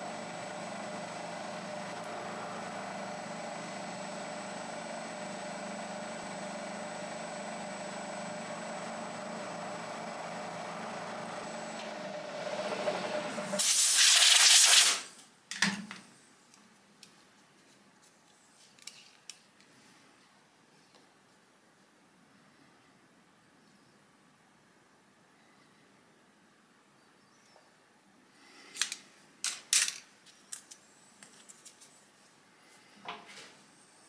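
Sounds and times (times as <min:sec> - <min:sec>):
milling machine running: 0:00.0 - 0:13.8
compressed air hiss: 0:13.6 - 0:15.1.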